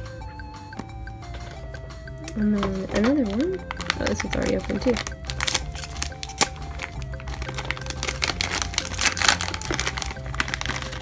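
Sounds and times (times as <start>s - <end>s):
background music: 0.0s - 11.0s
foil bag crinkling: 2.3s - 11.0s.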